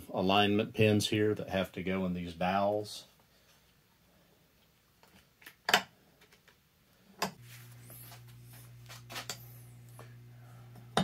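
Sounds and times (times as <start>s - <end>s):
low electrical hum: 7.0s - 11.0s.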